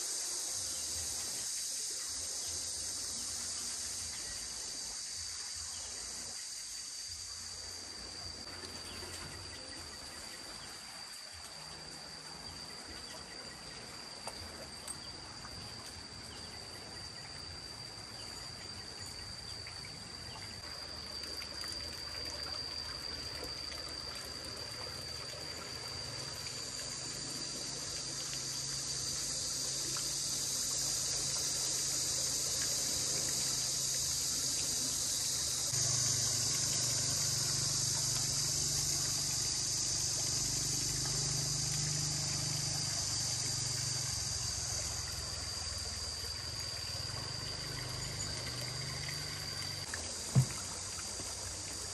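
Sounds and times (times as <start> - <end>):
high hiss: 0.0 - 14.2, 25.2 - 51.9
insects chirring: 0.0 - 51.9.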